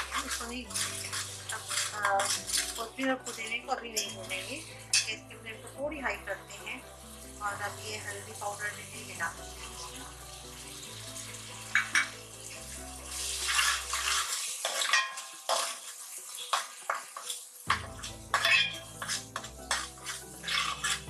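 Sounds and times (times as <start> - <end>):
steel ladle scraping a pot: 0.0 - 5.2, 10.7 - 12.3, 13.1 - 21.0
spices sizzling in hot oil: 0.0 - 21.0.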